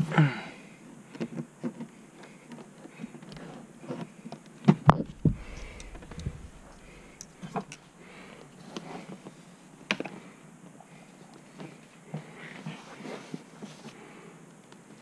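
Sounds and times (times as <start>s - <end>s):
low thud: 5.0s - 7.7s.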